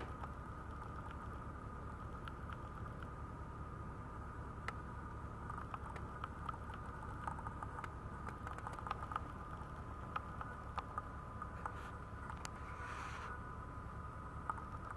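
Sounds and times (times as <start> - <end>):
faint whine: 0.0 - 14.9
low background rumble: 0.0 - 14.9.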